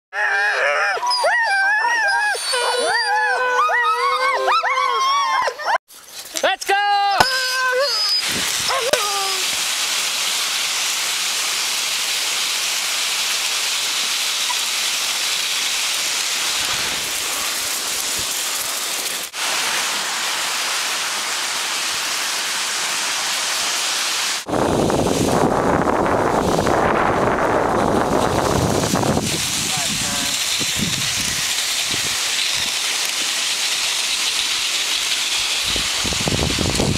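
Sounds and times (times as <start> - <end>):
sled runners hissing over snow: 8.0 - 36.9
wind rumbling on microphone: 8.2 - 8.7, 24.5 - 32.8, 35.6 - 36.9.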